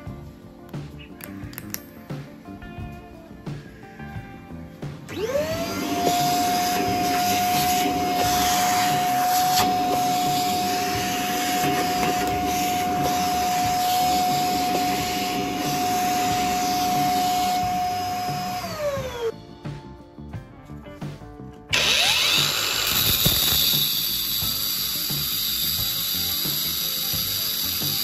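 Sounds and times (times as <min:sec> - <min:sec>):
vacuum cleaner running: 0:05.1 - 0:19.3, 0:21.7 - 0:28.0
vacuum motor winding down: 0:05.1 - 0:19.3, 0:21.7 - 0:28.0.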